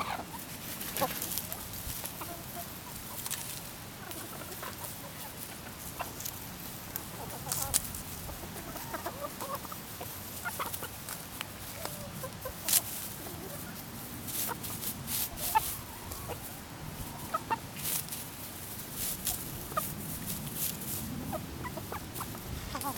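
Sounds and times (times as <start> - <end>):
hens clucking: 0.0 - 22.9
pecking clicks in dry grass: 3.0 - 4.8, 5.5 - 8.5, 10.0 - 16.4, 17.8 - 22.9.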